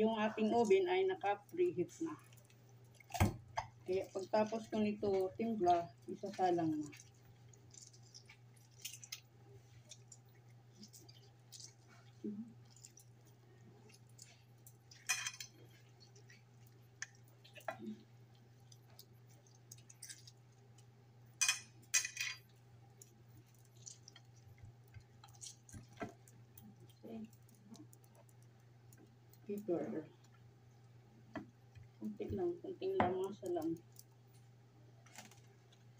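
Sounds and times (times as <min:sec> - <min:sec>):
hands squishing raw chicken: 0:02.0 - 0:21.0, 0:22.8 - 0:29.4.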